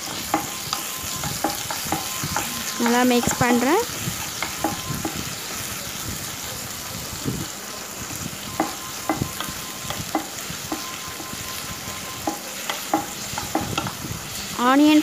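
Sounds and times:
spatula clicking against pan: 0:00.0 - 0:05.2, 0:08.5 - 0:11.4, 0:12.0 - 0:14.0
onions sizzling in oil: 0:00.0 - 0:15.0.

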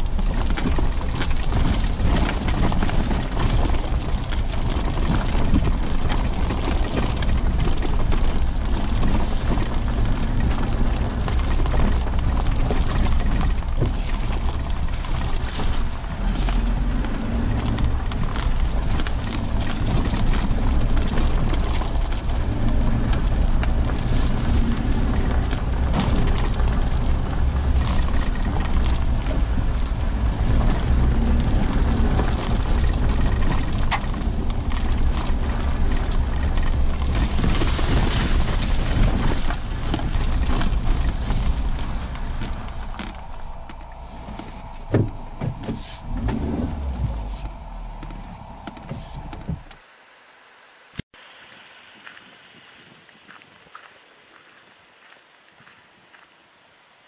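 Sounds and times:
high squeaks: 0:00.0 - 0:08.0, 0:13.9 - 0:45.4
knocks and clicks from bumps: 0:00.0 - 0:49.8
engine and tyre rumble: 0:00.0 - 0:49.9.

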